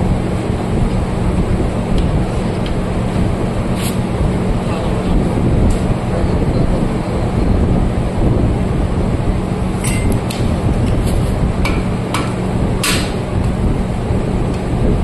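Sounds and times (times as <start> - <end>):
steady low rumble: 0.0 - 15.0
sharp metal taps: 11.6 - 13.2.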